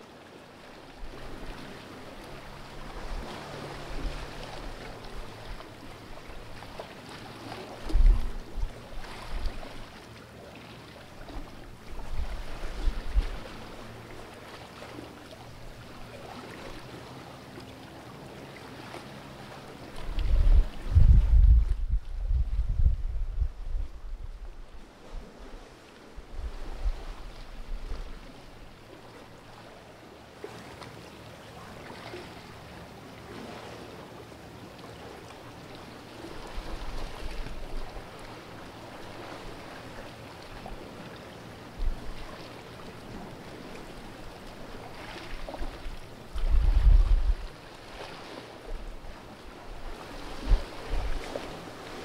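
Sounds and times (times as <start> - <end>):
sea lapping against rocks: 1.1 - 17.0, 18.6 - 28.6, 34.9 - 52.0
wind buffeting microphone: 7.8 - 9.6, 20.0 - 28.2, 45.6 - 47.5.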